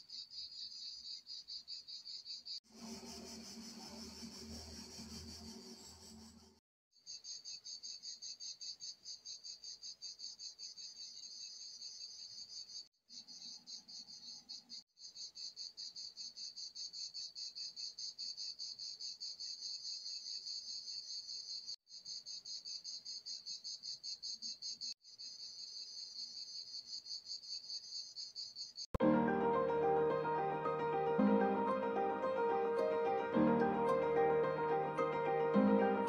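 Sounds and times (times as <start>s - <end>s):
insect chirping: 0.0s - 28.9s.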